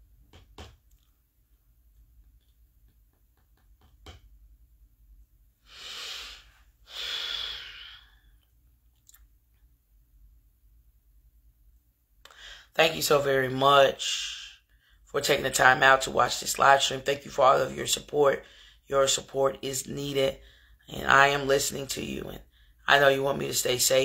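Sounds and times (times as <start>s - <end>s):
person breathing heavily: 5.6s - 8.4s, 12.3s - 12.7s, 18.4s - 18.8s.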